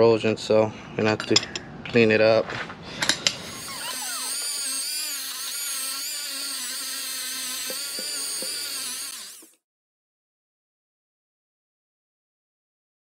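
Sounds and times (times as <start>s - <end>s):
rotary tool whining on metal: 3.0s - 9.6s.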